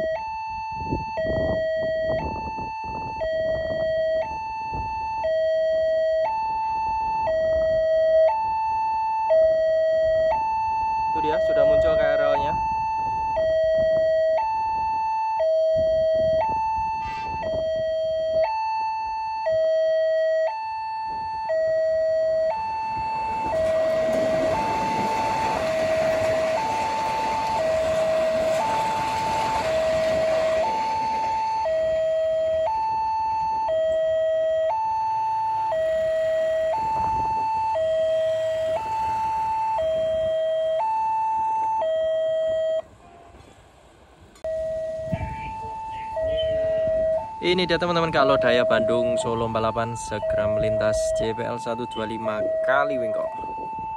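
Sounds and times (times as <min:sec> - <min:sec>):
two-tone crossing alarm: 0:00.0 - 0:53.9
train wheels rushing on rail: 0:22.9 - 0:32.6.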